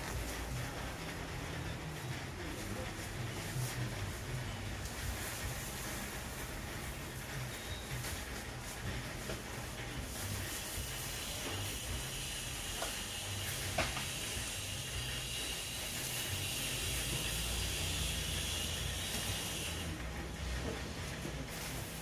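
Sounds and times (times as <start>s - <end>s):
batter hissing on hot griddle: 9.7s - 20.0s.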